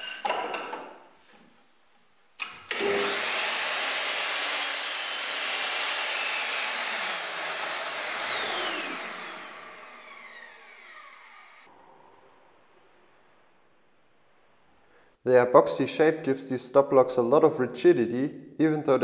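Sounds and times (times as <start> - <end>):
saw blade cutting wood: 2.7 - 11.7
saw motor whining: 2.7 - 11.7.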